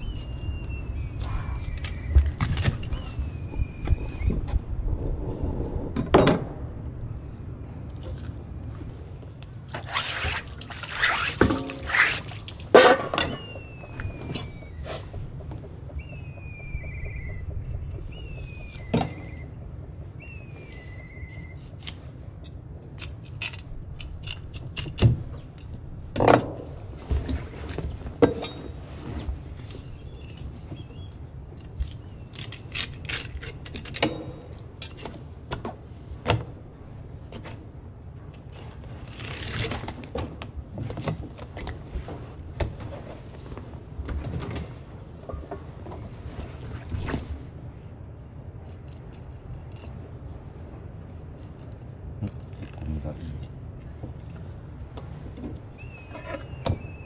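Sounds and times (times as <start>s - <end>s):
low rumble: 0.0s - 9.7s, 13.7s - 21.4s.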